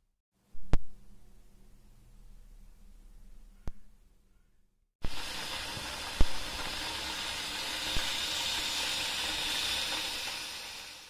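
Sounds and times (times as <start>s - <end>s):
kettle boiling hiss: 5.0s - 11.0s.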